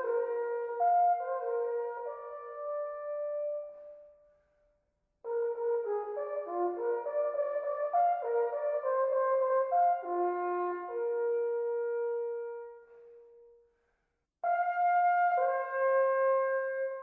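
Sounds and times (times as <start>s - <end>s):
wooden horns playing in harmony: 5.3s - 12.9s, 14.4s - 17.0s.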